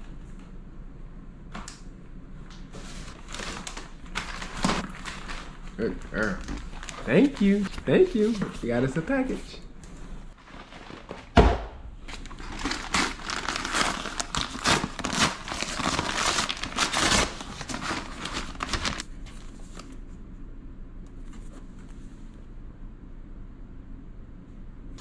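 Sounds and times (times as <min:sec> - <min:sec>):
paper tearing and rustling: 0:02.7 - 0:09.0, 0:12.1 - 0:20.0.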